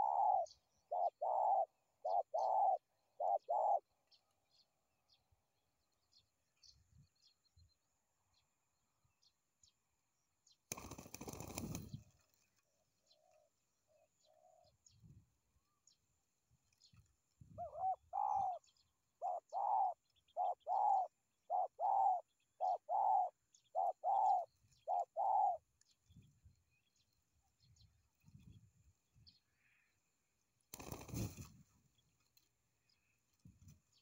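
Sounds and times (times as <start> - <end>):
dove cooing: 0.0 - 3.9, 17.5 - 25.6
wing flapping: 10.7 - 12.4, 30.7 - 31.7.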